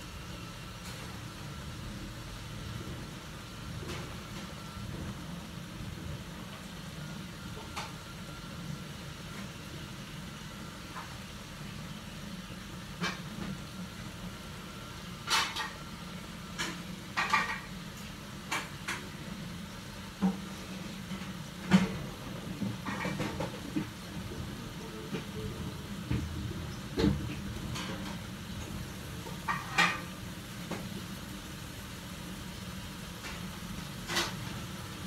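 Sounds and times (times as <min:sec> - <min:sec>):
gas burner rumble: 0:00.0 - 0:35.0.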